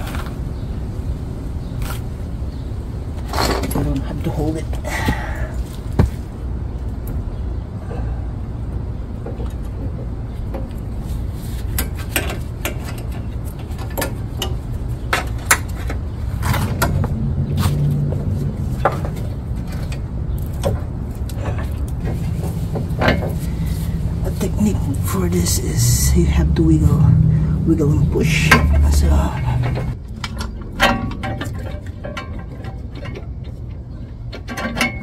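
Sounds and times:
steady low hum: 0.0 - 35.0
metal clicks and knocks: 11.7 - 17.2, 18.7 - 23.4, 29.5 - 35.0.

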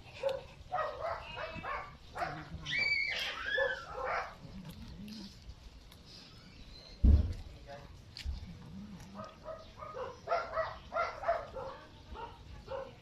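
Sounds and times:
high animal cries: 1.0 - 4.4.

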